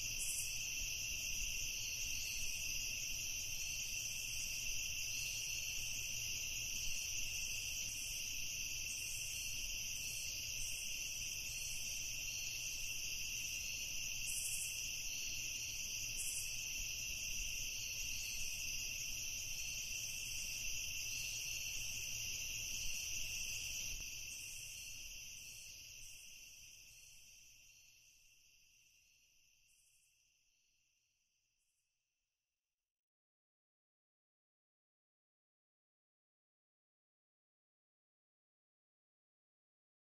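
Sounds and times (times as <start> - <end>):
insects chirping: 0.0 - 31.7.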